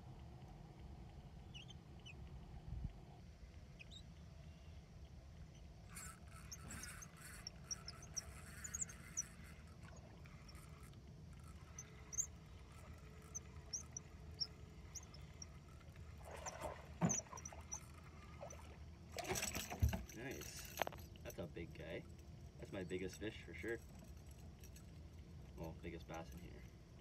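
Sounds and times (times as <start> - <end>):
faint high squeaks: 5.4 - 21.4
fish splashing and thrashing: 6.4 - 21.2.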